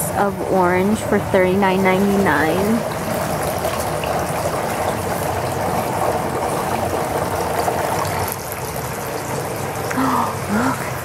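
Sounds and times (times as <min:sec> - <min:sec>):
running water trickling: 0:00.0 - 0:11.0.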